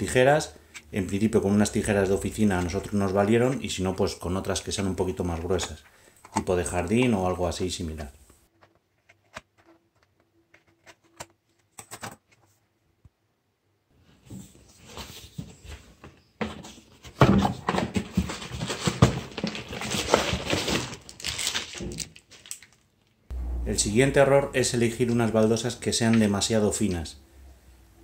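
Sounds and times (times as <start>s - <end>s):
cardboard and plastic crinkling: 16.4s - 23.1s.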